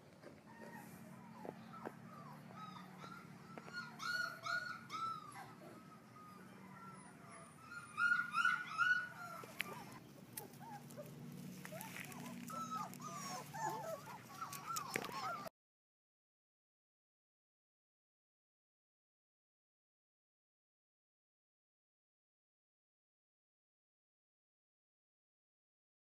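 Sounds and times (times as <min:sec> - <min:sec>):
puppies whimpering and yipping: 0:00.1 - 0:15.5.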